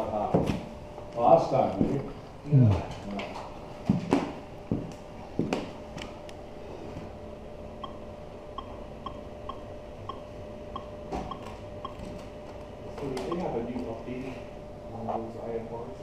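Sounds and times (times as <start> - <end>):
faint steady hum: 0.0 - 16.0
keypad beeps: 7.8 - 12.2, 13.2 - 13.6.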